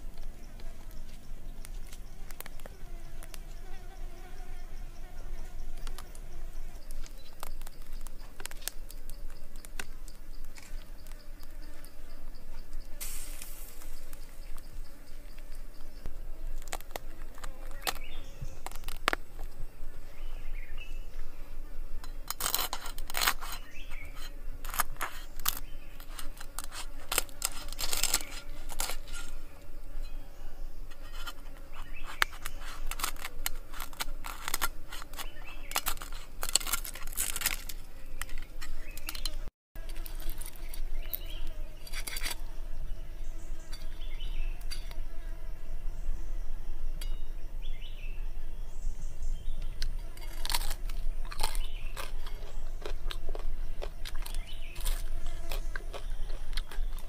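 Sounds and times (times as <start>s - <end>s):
cleaver scraping crisp skin: 13.0s - 14.7s, 16.4s - 19.5s, 22.2s - 29.6s, 30.9s - 42.5s, 49.7s - 57.0s.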